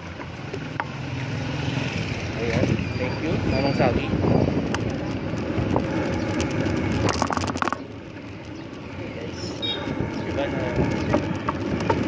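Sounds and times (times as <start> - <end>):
street and traffic noise: 0.0 - 12.0
wind buffeting microphone: 2.5 - 8.9, 9.6 - 12.0
rattling crackle: 4.4 - 12.0.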